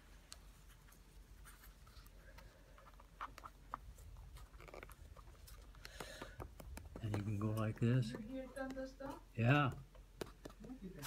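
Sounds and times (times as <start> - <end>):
petal scratching on paper: 0.6 - 9.2.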